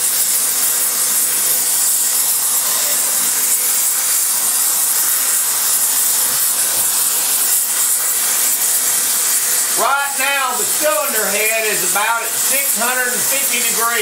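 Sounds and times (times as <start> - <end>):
torch flame hissing: 0.0 - 14.0.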